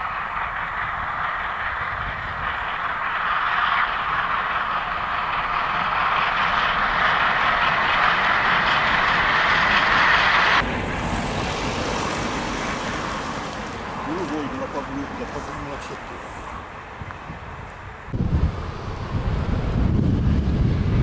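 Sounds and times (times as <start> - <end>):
distant train: 0.0 - 21.0
steam train passing: 0.0 - 21.0.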